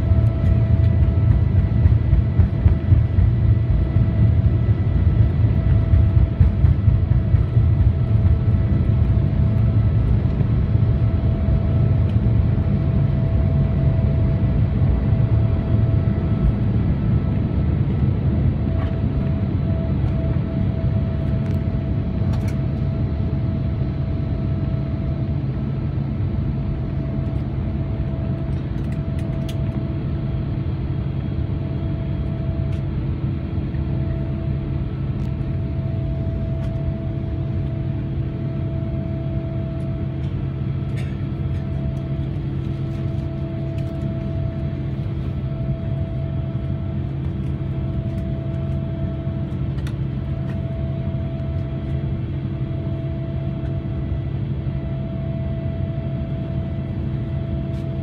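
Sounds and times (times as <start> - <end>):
deep rumble of jet engines: 0.0 - 58.0
wavering mid-pitched hum: 0.0 - 58.0.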